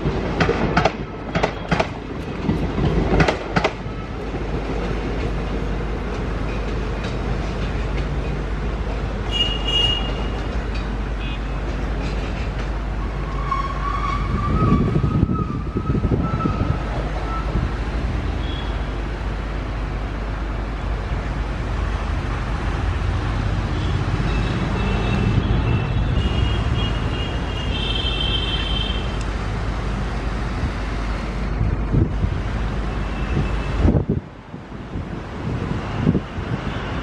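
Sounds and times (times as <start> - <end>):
train wheels rumbling and clattering: 0.0 - 37.0
high wheel squeal: 12.3 - 17.6.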